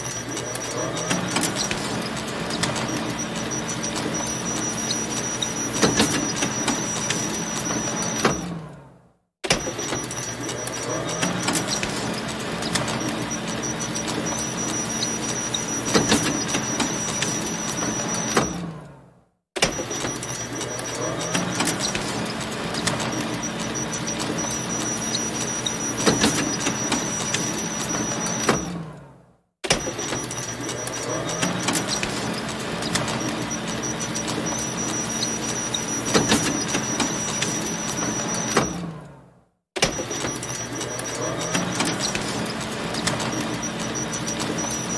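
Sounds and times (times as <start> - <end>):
photocopier whirring: 0.0 - 8.6, 9.5 - 18.8, 19.7 - 28.9, 29.8 - 39.0, 39.8 - 44.9
photocopier clacks: 0.1 - 8.0, 9.6 - 18.1, 29.8 - 38.6, 39.9 - 44.9.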